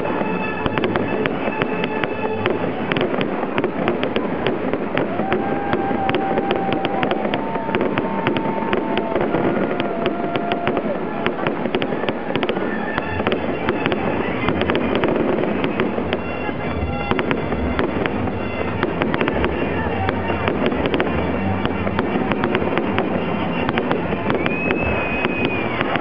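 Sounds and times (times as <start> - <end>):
fireworks bangs and crackles: 0.0 - 26.0.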